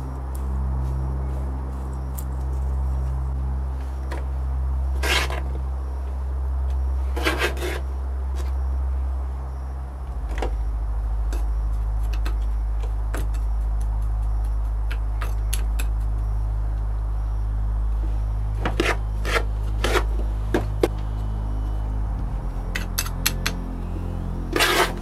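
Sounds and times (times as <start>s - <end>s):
steady low hum: 0.0s - 25.0s
spoons scraping sand: 4.9s - 5.5s, 7.0s - 8.6s, 18.6s - 20.2s, 24.5s - 25.0s.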